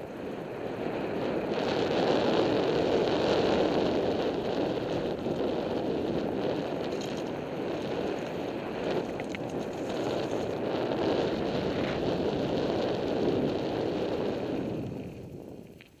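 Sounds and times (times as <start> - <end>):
tyres on gravel trail: 0.0 - 16.0
wind buffeting microphone: 0.0 - 16.0
small clicks: 8.1 - 10.6, 15.6 - 16.0.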